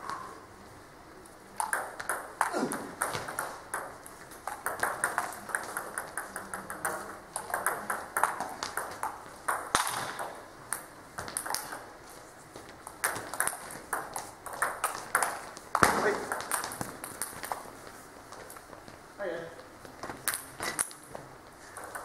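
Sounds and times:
ball bouncing on table: 0:01.6 - 0:11.9, 0:12.6 - 0:17.6
table tennis ball clicking off rackets: 0:01.6 - 0:11.9, 0:12.6 - 0:17.7, 0:21.8 - 0:22.0.

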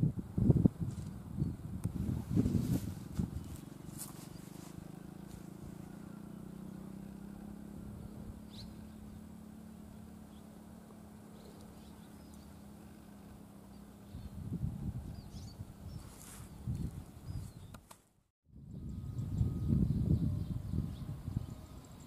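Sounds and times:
distant vehicle engine hum: 0:00.2 - 0:17.9, 0:18.6 - 0:22.0
bird chirps: 0:05.9 - 0:17.9.

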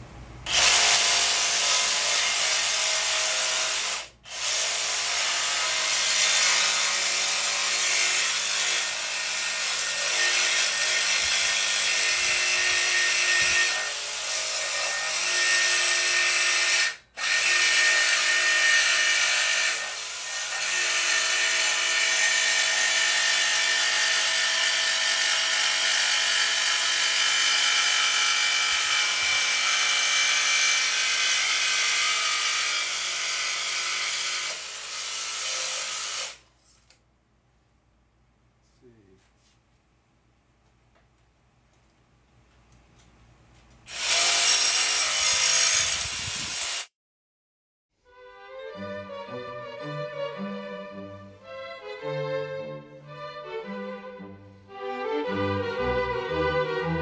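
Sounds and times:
jigsaw cutting metal: 0:00.5 - 0:36.4, 0:43.9 - 0:46.9.

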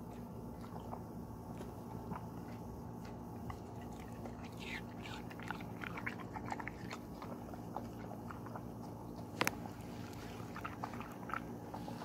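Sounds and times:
dog chewing and lip smacking: 0:00.0 - 0:12.0
wet mouth clicks: 0:07.7 - 0:11.5.

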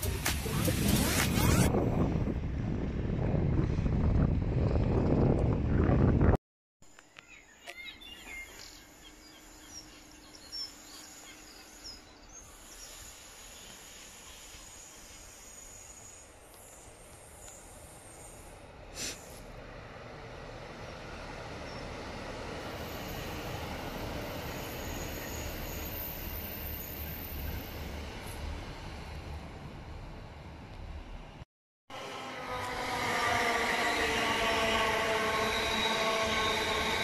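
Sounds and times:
train passing rumble: 0:08.2 - 0:37.0.

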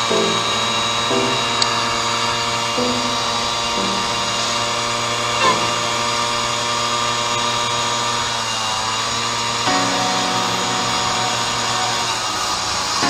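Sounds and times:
moped engine running: 0:00.0 - 0:08.4.

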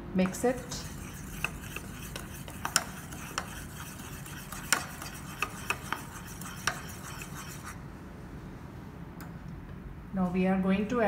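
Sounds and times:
spoon scraping ceramic bowl: 0:00.3 - 0:07.8.

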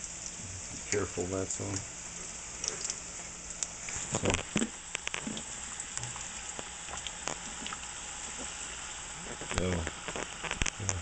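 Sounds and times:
dough sizzling in hot oil: 0:00.0 - 0:11.0.

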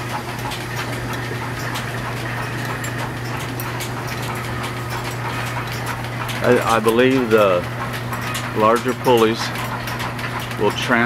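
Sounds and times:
line shaft low hum: 0:00.0 - 0:10.6.

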